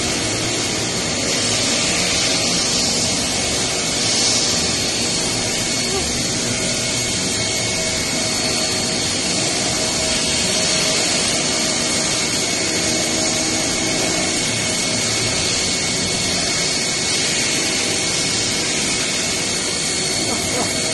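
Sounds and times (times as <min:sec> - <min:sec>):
industrial machine running: 0:00.0 - 0:20.9
high whines: 0:11.3 - 0:20.9.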